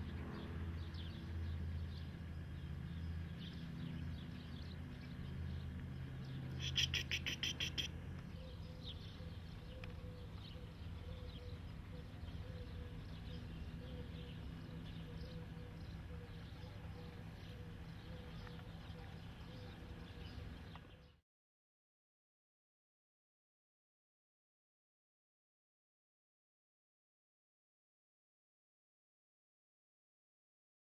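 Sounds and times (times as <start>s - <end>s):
low steady hum: 0.0s - 21.2s
short bird chirps: 6.6s - 7.9s.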